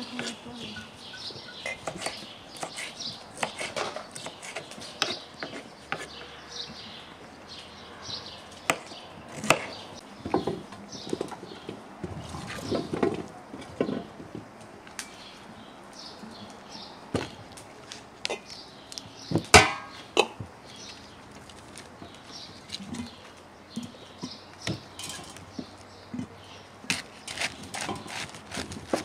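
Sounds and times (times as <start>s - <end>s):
knife chopping on wooden board: 1.8s - 6.1s
cabbage being torn: 26.9s - 29.0s.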